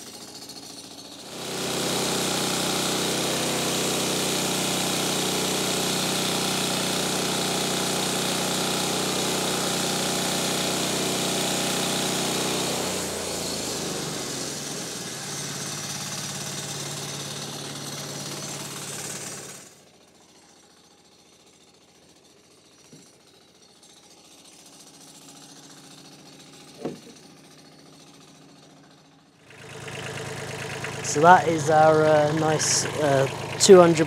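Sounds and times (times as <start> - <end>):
bandsaw sawmill engine running: 0.0 - 34.0
timber knocking: 26.8 - 27.2.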